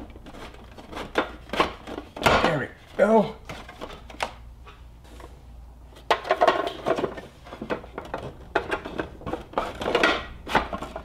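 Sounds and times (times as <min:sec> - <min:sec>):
plastic bins clicking and clattering: 0:06.0 - 0:11.0.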